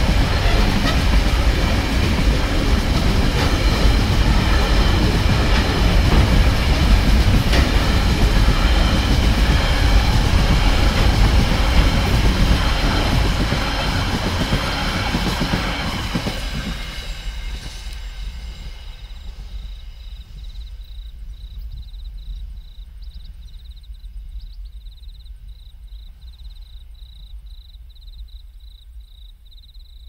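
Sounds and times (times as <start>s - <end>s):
freight train rolling on rails: 0.0s - 22.6s
insect chirping in pulsed trills: 0.0s - 30.0s.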